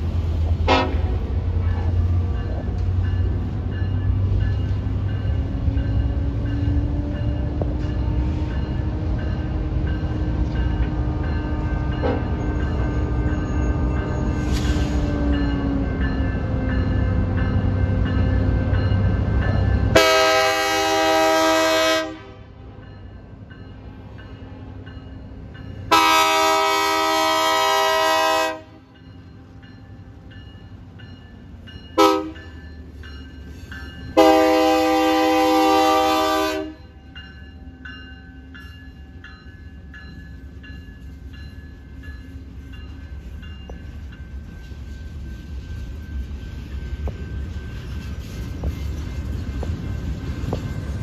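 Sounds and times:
train rumbling: 0.0 - 51.0
locomotive horn blasts: 0.6 - 1.2, 19.9 - 22.6, 25.9 - 28.8, 32.0 - 32.4, 34.1 - 36.8
crossing signal bell ringing: 1.5 - 21.1, 22.7 - 51.0.

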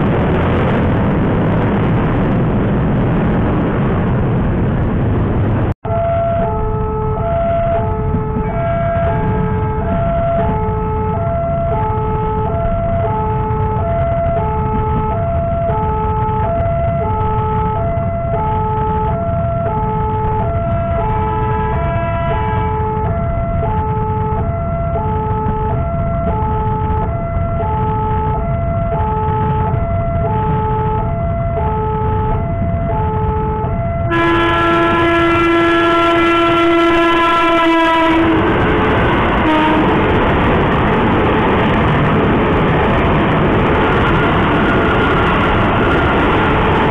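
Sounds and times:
low rumble: 0.0 - 46.9
train running over crossing: 0.0 - 46.9
train horn blast: 5.9 - 14.3, 19.5 - 26.2, 32.8 - 40.5.

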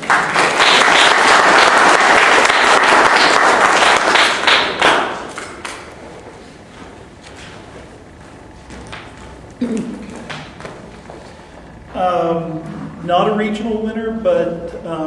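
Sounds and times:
audience applauding: 0.0 - 5.8.

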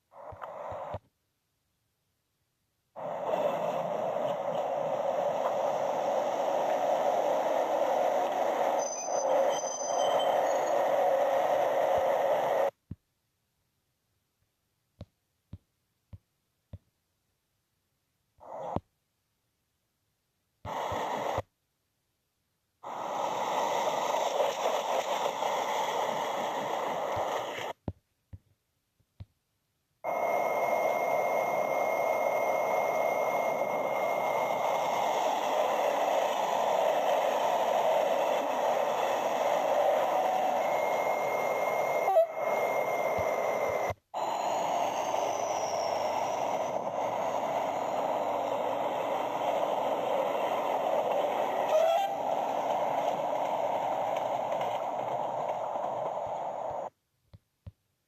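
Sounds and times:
train wheels on rails: 3.0 - 12.7, 23.0 - 27.8, 30.4 - 56.9
diesel locomotive passing: 44.6 - 56.8.

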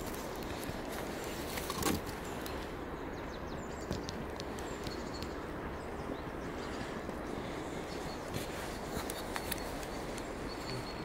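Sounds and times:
outdoor background noise: 0.0 - 11.0
faint high chirps: 9.4 - 11.0.

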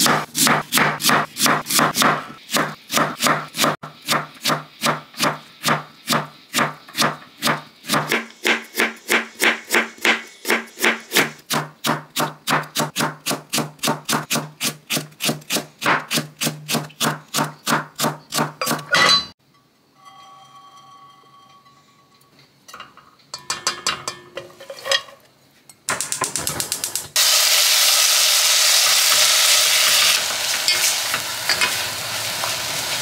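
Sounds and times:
knife chopping on cutting board: 0.0 - 18.9.

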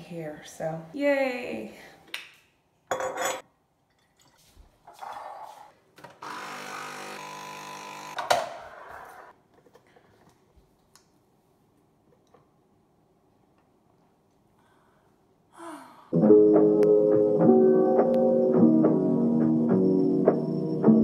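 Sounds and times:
glass jar clinking: 2.9 - 4.5
coffee machine pump buzzing: 6.2 - 8.2.

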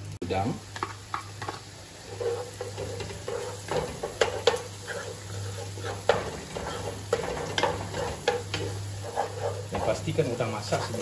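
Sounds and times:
paste sizzling in oil: 0.0 - 11.0
spatula scraping pot: 0.8 - 11.0
spatula knocking against pot: 5.8 - 8.8.

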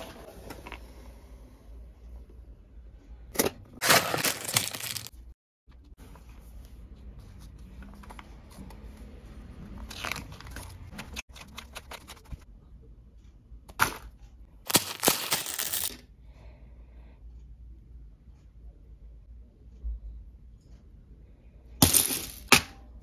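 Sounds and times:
paper pages rustling: 3.8 - 5.2, 6.0 - 9.1, 9.7 - 12.4
plastic bags crinkling: 3.8 - 5.2.

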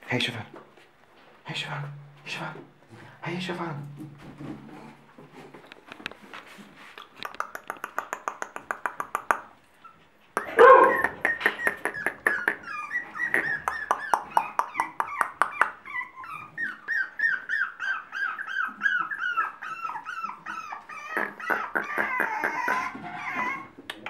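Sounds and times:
puppy yelping: 9.3 - 23.8
puppies whining and yipping: 9.7 - 23.9.

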